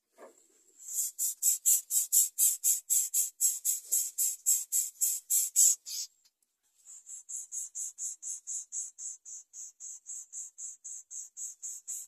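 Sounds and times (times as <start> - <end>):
nestlings begging calls: 1.0 - 6.1, 7.0 - 12.0.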